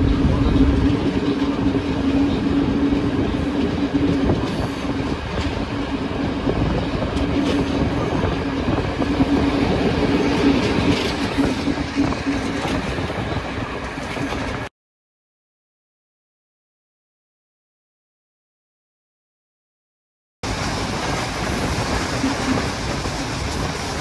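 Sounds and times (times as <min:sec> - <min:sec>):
train wheels clattering: 0:00.0 - 0:14.7, 0:20.5 - 0:24.0.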